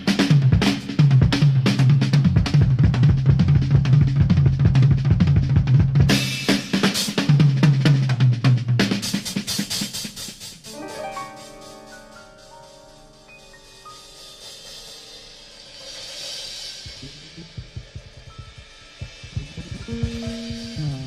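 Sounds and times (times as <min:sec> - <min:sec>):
drum kit groove with bass line: 0:00.0 - 0:21.0
held pitched notes: 0:10.7 - 0:21.0.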